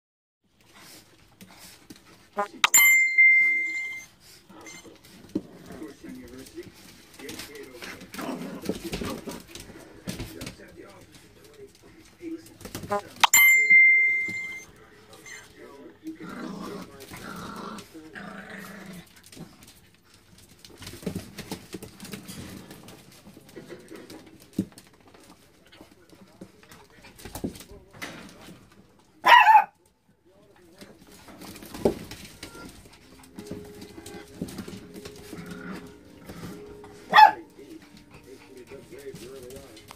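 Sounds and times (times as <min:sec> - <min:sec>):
puppies whining and grumbling: 0:02.6 - 0:05.3, 0:32.3 - 0:38.7
puppies growling: 0:04.4 - 0:10.1, 0:15.4 - 0:20.7, 0:31.4 - 0:39.9
puppy yipping: 0:29.2 - 0:29.8, 0:37.1 - 0:37.4.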